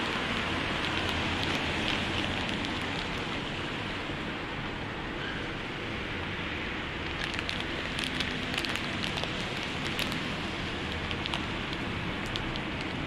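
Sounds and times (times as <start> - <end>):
car tyres on wet road: 0.0 - 13.0
sharp crackling clicks: 0.1 - 3.3, 7.1 - 13.0.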